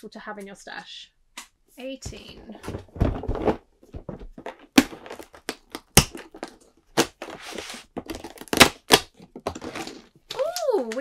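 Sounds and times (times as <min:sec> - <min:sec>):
cardboard tearing open: 0:04.8 - 0:10.1.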